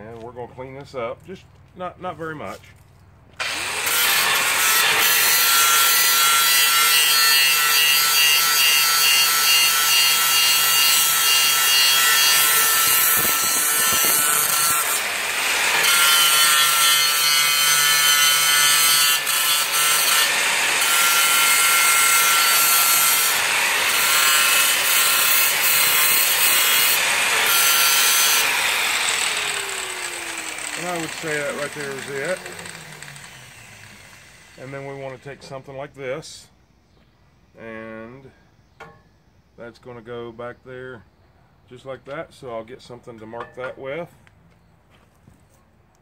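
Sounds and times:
angle grinder grinding metal: 3.4 - 35.6.

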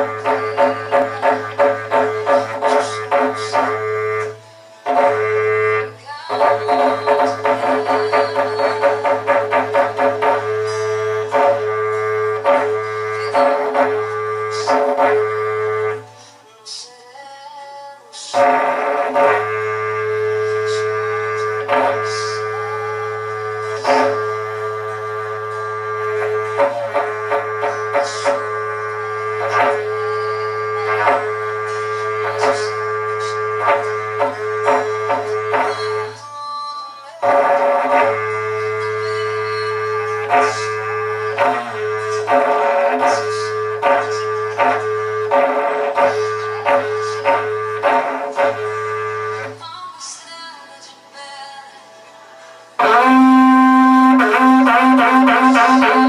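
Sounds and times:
horn blown with rhythmic pulses: 0.0 - 17.0, 18.2 - 49.7, 52.4 - 56.0.

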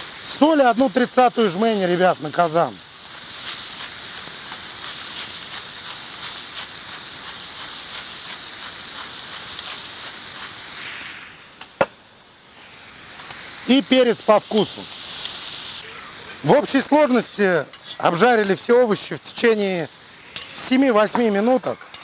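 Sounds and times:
vegetables sizzling in a pan: 0.0 - 22.0.

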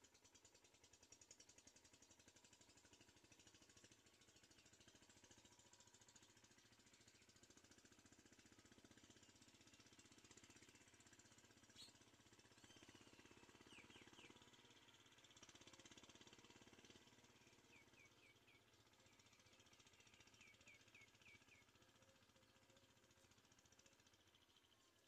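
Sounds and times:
faint fast pulsing hum: 0.0 - 25.0
bird chirps: 11.7 - 12.0, 12.6 - 14.4, 17.5 - 22.8.

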